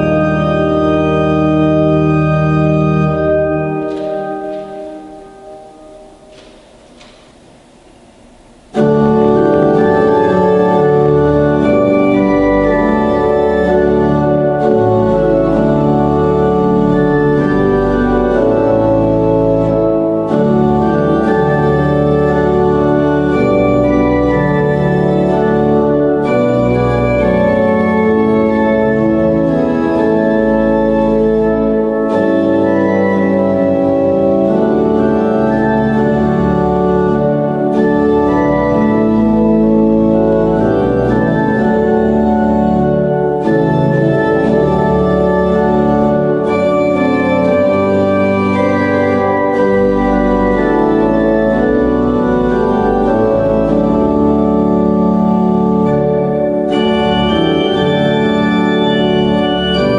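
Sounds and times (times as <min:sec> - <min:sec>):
organ playing slow chords: 0:00.0 - 0:59.9.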